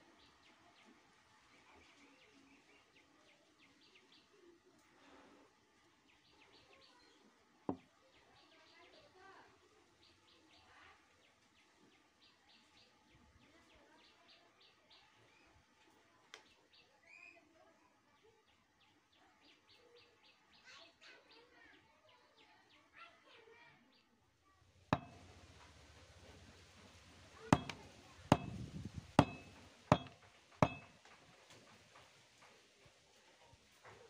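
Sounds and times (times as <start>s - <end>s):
faint bird chirps: 6.1s - 9.4s, 16.5s - 24.2s
hard objects knocking on wood: 25.0s - 32.1s.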